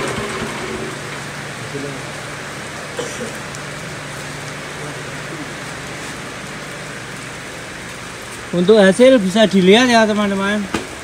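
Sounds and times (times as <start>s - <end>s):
small engine humming: 0.0s - 2.0s.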